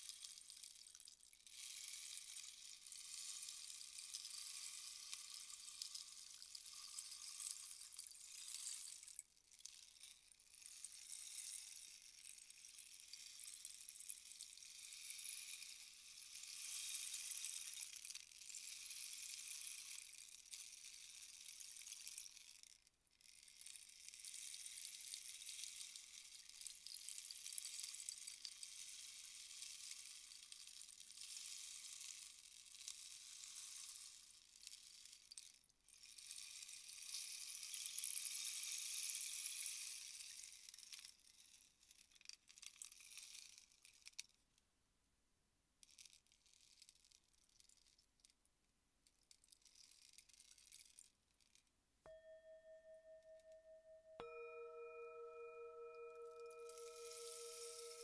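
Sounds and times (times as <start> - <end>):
rainstick pellets trickling: 0.0 - 22.4, 56.7 - 58.0
rainstick pebbles trickling: 0.0 - 44.4, 49.1 - 51.6.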